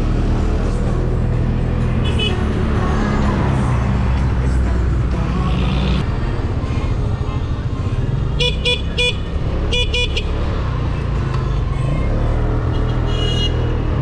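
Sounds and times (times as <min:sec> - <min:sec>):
vehicle horn beeps: 0:12.8 - 0:13.7.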